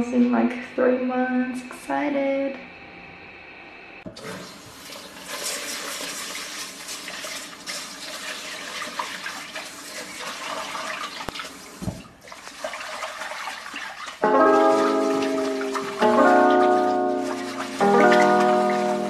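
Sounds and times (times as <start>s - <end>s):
tap water running into sink: 4.1s - 19.0s
music: 14.2s - 19.0s.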